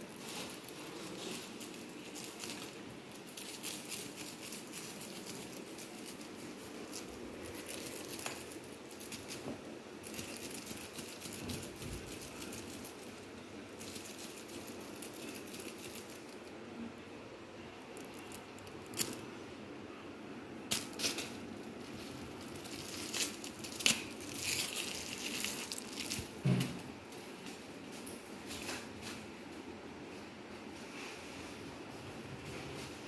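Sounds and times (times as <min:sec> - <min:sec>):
kitten claws scratching on tile: 0:00.0 - 0:16.5, 0:20.7 - 0:26.4
rustling: 0:00.0 - 0:16.5, 0:17.8 - 0:19.4, 0:20.7 - 0:29.6.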